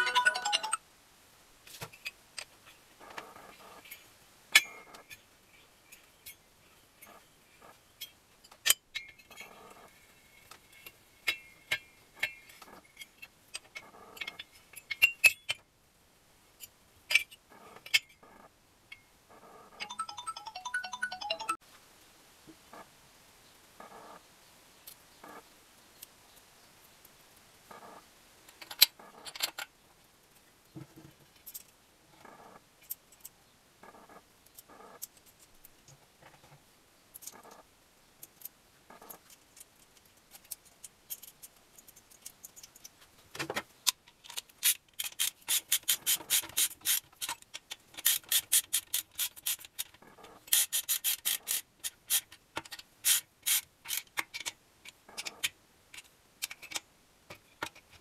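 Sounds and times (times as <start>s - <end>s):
socket wrench ratchet clicking: 50.5s - 52.3s.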